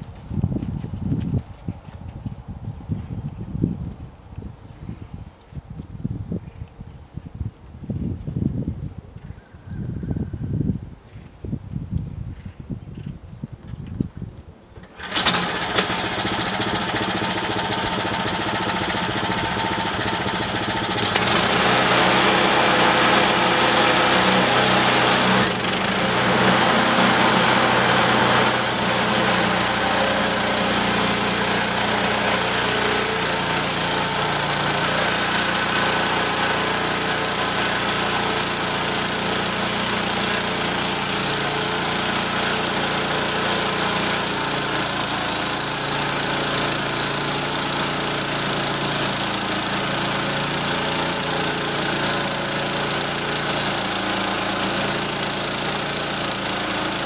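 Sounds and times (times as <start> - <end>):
small gas engine running: 14.8 - 57.0
bandsaw blade sawing log: 14.9 - 57.0.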